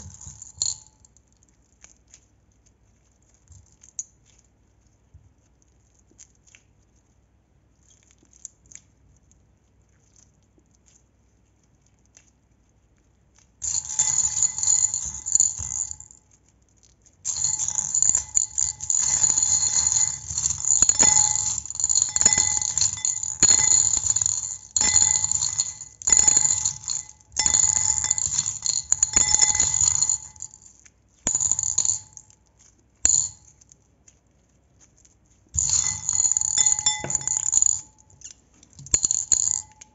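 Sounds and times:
faint ringing tone: 17.3s - 30.7s, 35.6s - 38.2s, 38.9s - 39.9s.

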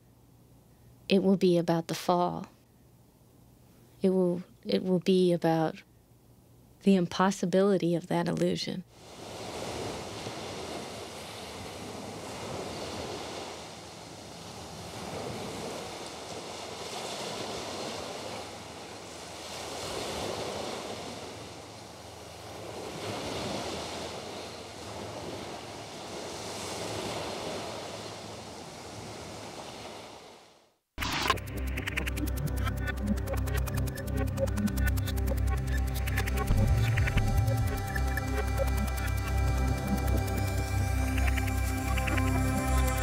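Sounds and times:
sea waves washing on shore: 8.9s - 43.0s.

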